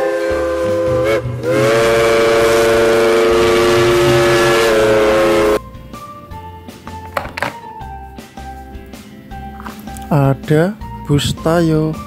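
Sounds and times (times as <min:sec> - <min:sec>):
steam train whistle blasts: 0:00.0 - 0:05.6.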